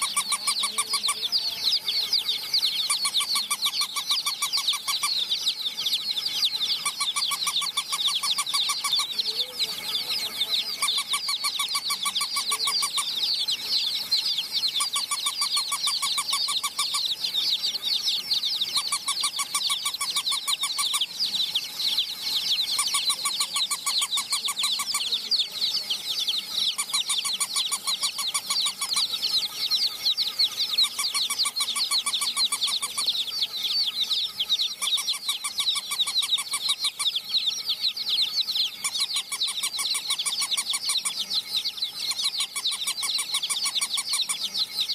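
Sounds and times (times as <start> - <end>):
baby chicks peeping: 0.0 - 44.9
rapid pulsing electronic beep: 0.0 - 44.9.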